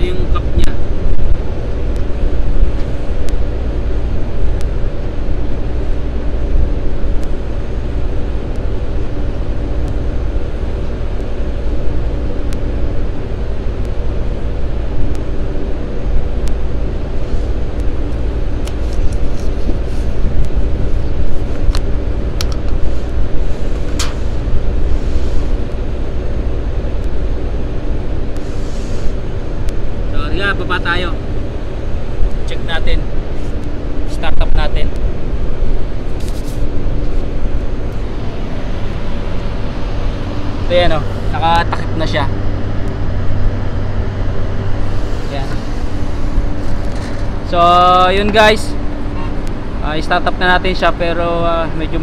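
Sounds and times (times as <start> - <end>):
machinery humming: 0.0 - 52.0.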